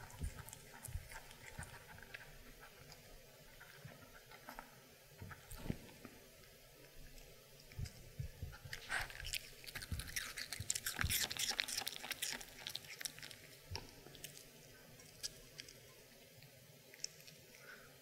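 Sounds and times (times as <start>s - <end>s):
dog crunching apple: 0.0s - 4.6s, 8.6s - 15.8s.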